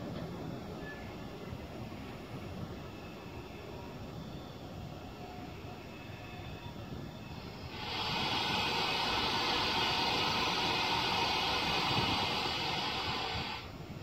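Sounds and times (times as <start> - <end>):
compressed air hissing: 7.2 - 14.0.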